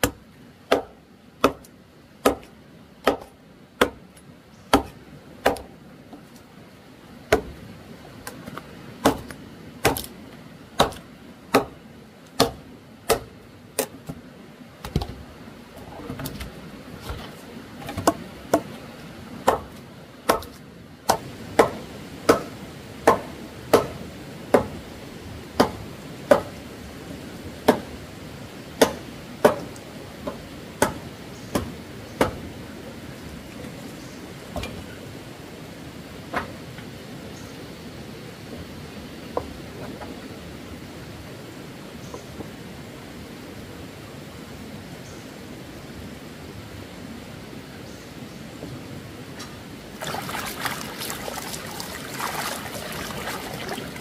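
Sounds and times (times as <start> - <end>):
blade chopping strikes: 9.0 - 10.1.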